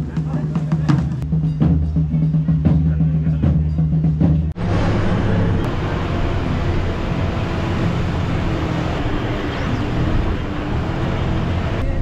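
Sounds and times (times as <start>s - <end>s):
road noise: 4.1s - 12.0s
bus engine running: 4.5s - 12.0s.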